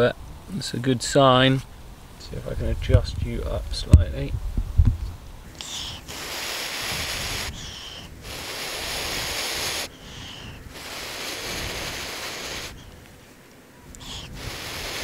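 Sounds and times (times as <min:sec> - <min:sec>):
person blowing breaths: 0:05.6 - 0:13.0, 0:14.0 - 0:15.0
person breathing in: 0:05.6 - 0:13.0, 0:14.0 - 0:15.0.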